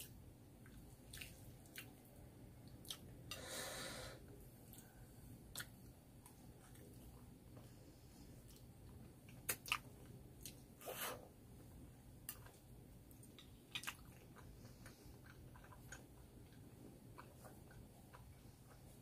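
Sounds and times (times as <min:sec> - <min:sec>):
person chewing wetly: 0:00.6 - 0:02.0, 0:02.7 - 0:03.4, 0:05.5 - 0:07.0, 0:08.4 - 0:10.6, 0:12.3 - 0:19.0.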